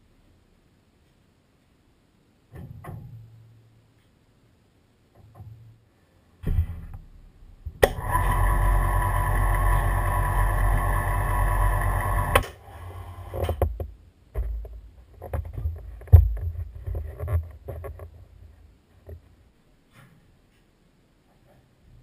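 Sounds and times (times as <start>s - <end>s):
knocks and clunks of parts: 2.5s - 3.4s, 6.4s - 7.1s, 13.3s - 18.2s
hoist motor running: 7.8s - 13.5s.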